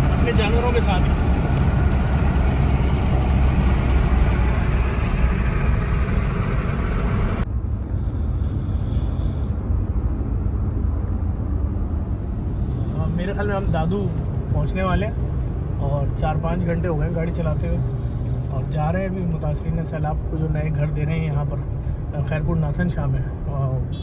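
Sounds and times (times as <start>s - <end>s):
engine and tyre rumble: 0.0s - 24.0s.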